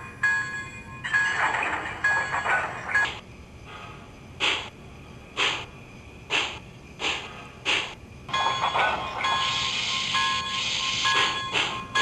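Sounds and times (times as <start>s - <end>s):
faint ringing tones: 0.0s - 4.3s, 8.1s - 12.0s
steam locomotive exhaust chuffs: 3.6s - 12.0s
steam hiss: 5.4s - 5.7s, 6.3s - 8.0s, 9.3s - 11.8s.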